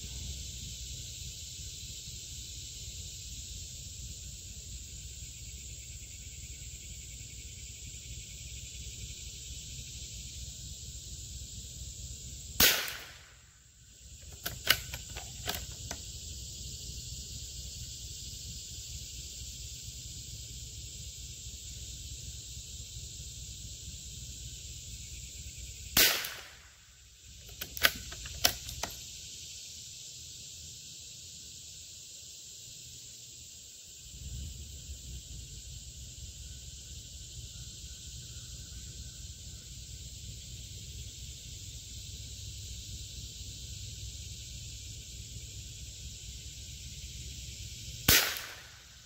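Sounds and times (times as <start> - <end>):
insects chirping: 0.0 - 49.0
rifle shot: 12.6 - 13.4, 14.3 - 15.9, 26.0 - 26.8, 48.1 - 49.0
rifle bolt clicks: 14.2 - 16.0, 27.4 - 29.0.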